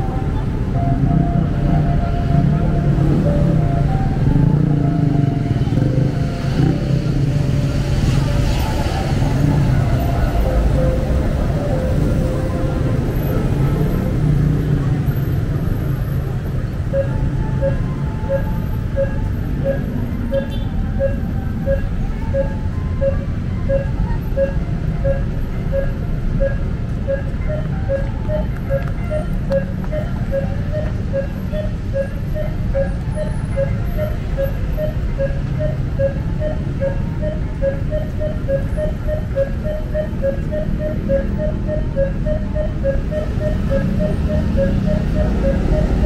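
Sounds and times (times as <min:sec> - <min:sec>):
city traffic rumble: 0:00.0 - 0:46.0
crossing signal beeping: 0:00.0 - 0:46.0.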